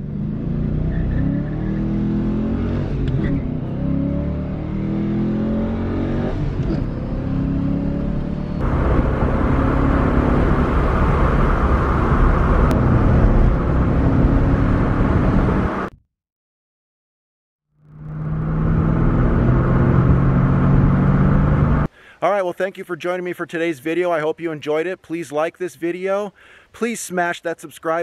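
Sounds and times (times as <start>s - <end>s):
car engine exhaust note: 0.0s - 15.8s
road and wind noise: 0.0s - 16.0s, 17.8s - 21.9s.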